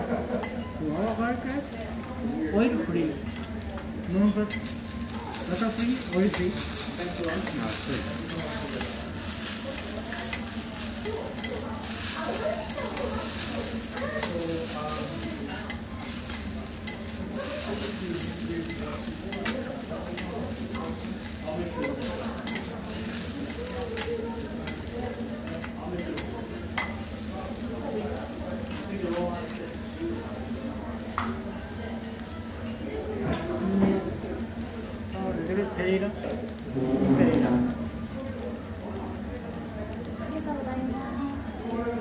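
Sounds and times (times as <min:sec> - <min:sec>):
food sizzling on griddle: 0:00.0 - 0:42.0
metal spatula scraping griddle: 0:36.7 - 0:37.7.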